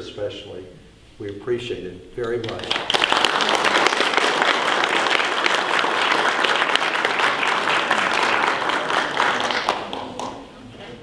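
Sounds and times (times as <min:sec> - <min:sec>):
audience applauding: 0:02.4 - 0:10.5.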